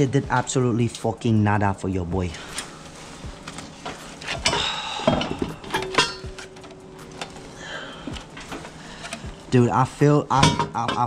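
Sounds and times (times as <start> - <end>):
metal scraping: 2.3 - 11.0
metal clinking and knocking: 3.3 - 7.5, 10.4 - 11.0.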